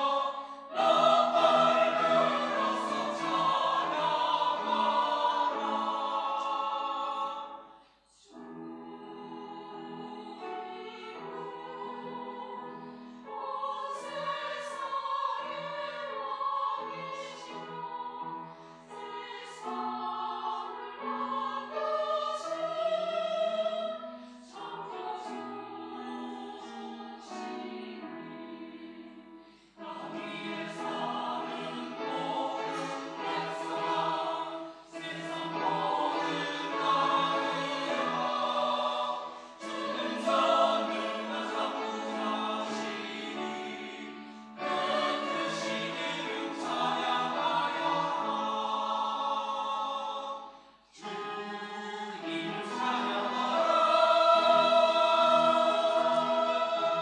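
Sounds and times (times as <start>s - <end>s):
mixed choir singing: 0.0s - 57.0s.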